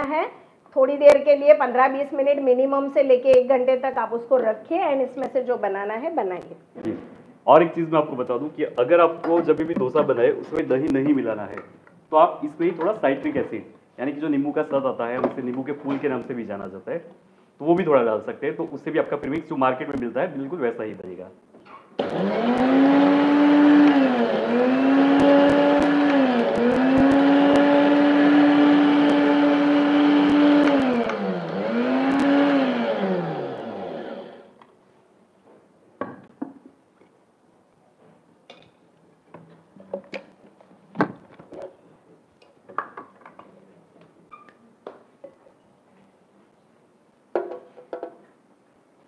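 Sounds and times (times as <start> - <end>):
electric blender motor grinding: 22.0 - 34.6.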